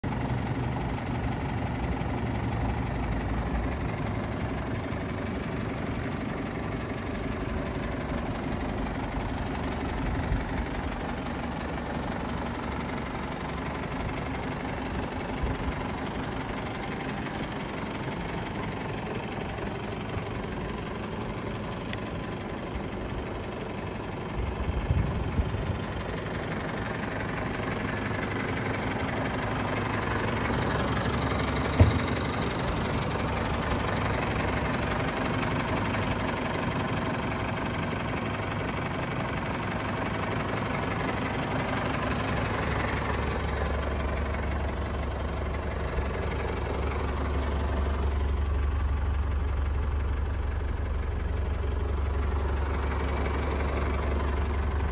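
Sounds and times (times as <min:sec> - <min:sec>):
truck diesel engine idling: 0:00.0 - 0:54.9
brief knocks: 0:31.8 - 0:32.2.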